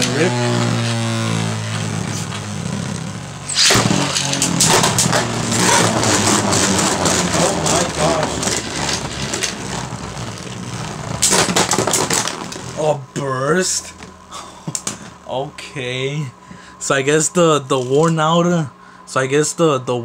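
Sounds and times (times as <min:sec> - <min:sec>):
spinning top whirring: 0:00.0 - 0:12.9.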